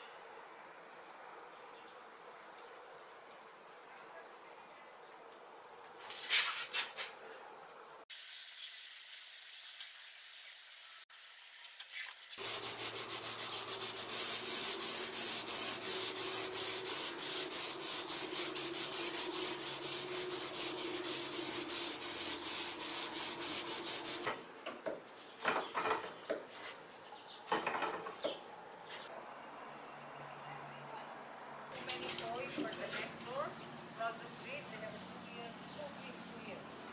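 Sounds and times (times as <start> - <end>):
sandpaper rubbing on wood: 6.0 - 7.2, 12.4 - 24.3, 32.3 - 36.9.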